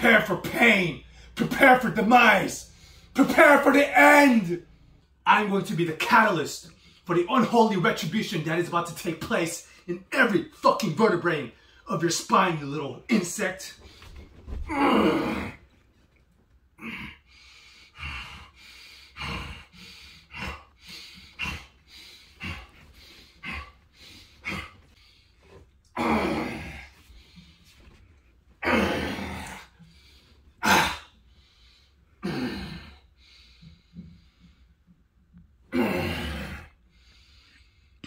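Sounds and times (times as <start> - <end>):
man grunting: 14.7 - 15.6, 25.9 - 26.9, 28.6 - 29.7, 30.6 - 31.1, 32.2 - 33.0, 35.7 - 36.7
man breathing hard: 16.8 - 28.2, 28.8 - 35.1, 35.8 - 38.0.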